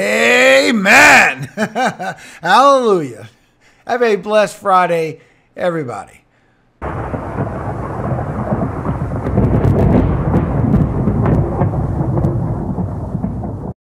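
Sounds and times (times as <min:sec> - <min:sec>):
rain: 0:06.8 - 0:13.8
rolling thunder: 0:06.8 - 0:13.8
sharp thunder crackles: 0:06.8 - 0:13.8.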